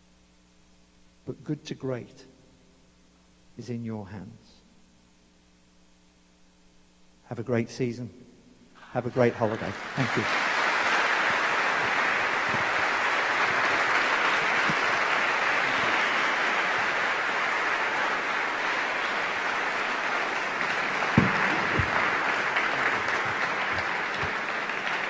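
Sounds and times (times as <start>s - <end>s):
audience applauding: 8.8s - 25.0s
dull thumps: 20.6s - 24.4s.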